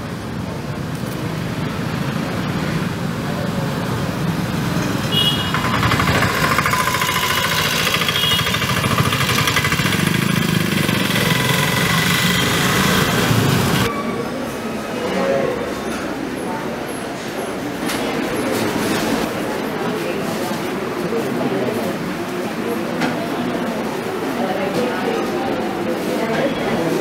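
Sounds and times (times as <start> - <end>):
vehicle engine running: 3.0 - 13.9.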